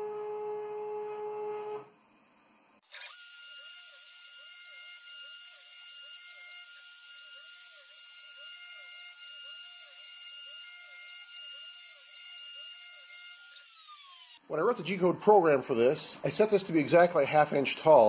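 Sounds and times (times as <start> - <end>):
router high whine: 2.9 - 14.8.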